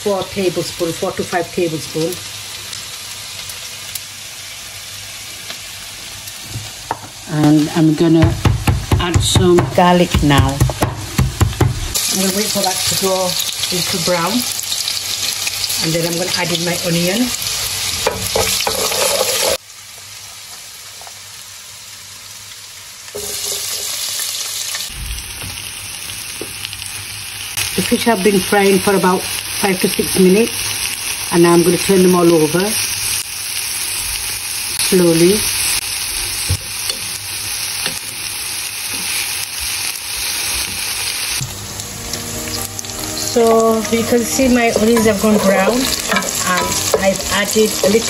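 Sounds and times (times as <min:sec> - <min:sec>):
garlic sizzling in hot oil: 0:00.0 - 0:48.0
onions dropped into oil: 0:23.1 - 0:25.6.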